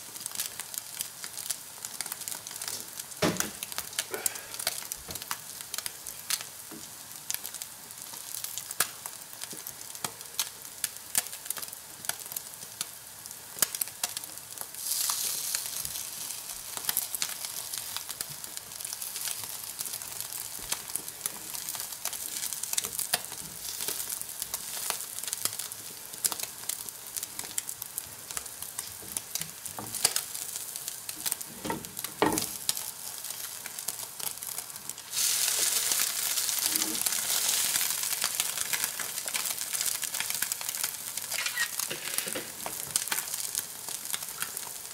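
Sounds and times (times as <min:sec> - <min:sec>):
patty sizzling and popping in pan: 0:00.0 - 0:44.9.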